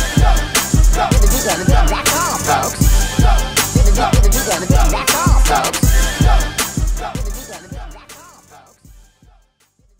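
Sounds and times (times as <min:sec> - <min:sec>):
deep bass hits: 0:00.0 - 0:07.3.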